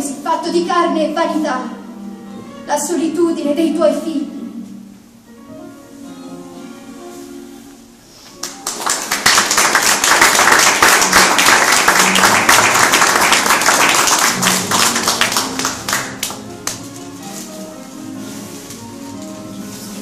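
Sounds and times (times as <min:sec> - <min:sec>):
audience applauding: 0:08.4 - 0:16.8.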